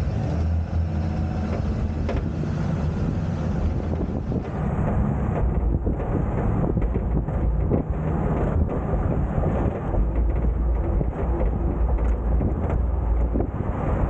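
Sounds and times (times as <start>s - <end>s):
road and wind noise rumble: 0.0s - 14.0s
faint rattles: 3.6s - 13.6s.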